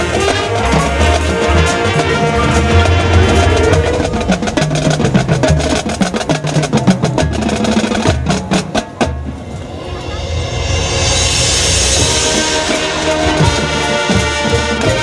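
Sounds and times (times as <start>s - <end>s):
brass chords: 0.0s - 6.0s, 9.4s - 15.0s
rapid sharp percussion hits: 0.0s - 15.0s
low drum pulse: 2.0s - 6.1s.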